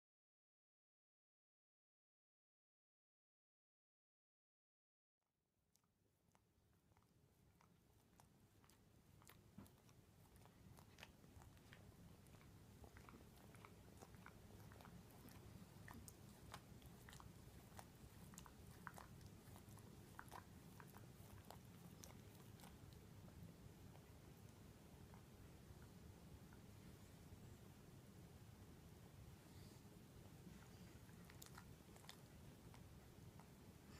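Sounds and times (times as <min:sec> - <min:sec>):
low room hum: 0:05.7 - 0:33.9
dog licking wet smacks: 0:06.9 - 0:23.1, 0:30.6 - 0:33.6.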